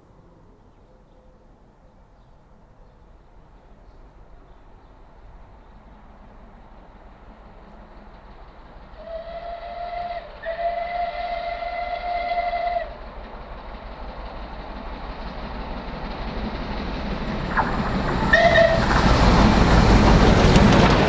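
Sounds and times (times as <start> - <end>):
train running at speed: 1.5 - 21.0
steam whistle blasts: 9.0 - 13.0, 18.3 - 18.8.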